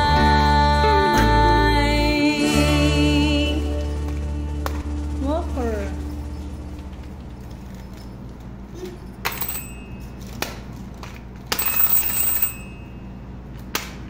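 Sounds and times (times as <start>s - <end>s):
steady low hum: 0.0s - 11.4s
small bell ringing: 9.2s - 10.3s, 11.5s - 13.2s.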